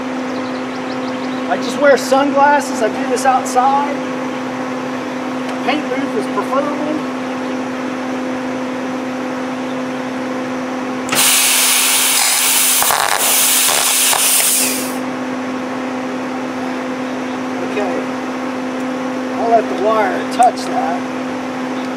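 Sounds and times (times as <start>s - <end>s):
machine humming: 10.9s - 15.2s
spray gun air hissing: 11.1s - 15.0s.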